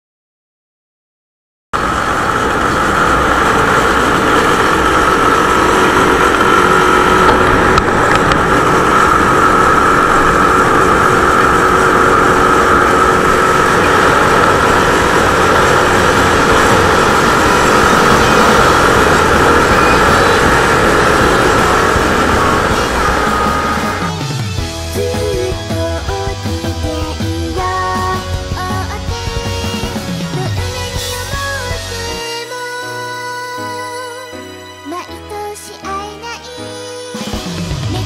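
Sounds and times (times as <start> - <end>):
wind and road noise: 1.8 - 30.1
motorcycle engine running: 1.8 - 32.1
constant whine: 1.8 - 34.4.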